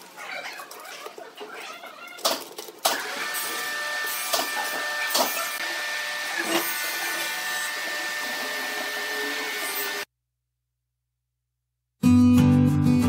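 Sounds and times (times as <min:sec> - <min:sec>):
machine motor whining: 0:02.9 - 0:10.1.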